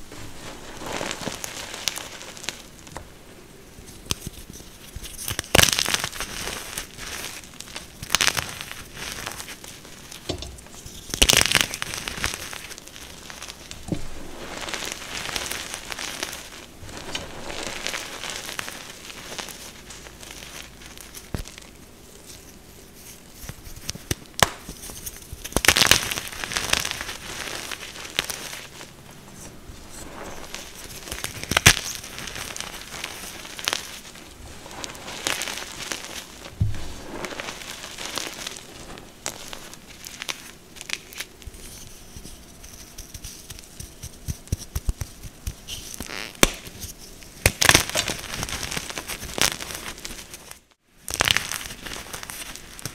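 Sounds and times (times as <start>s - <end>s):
chalk pieces snapping: 40.2s - 49.6s.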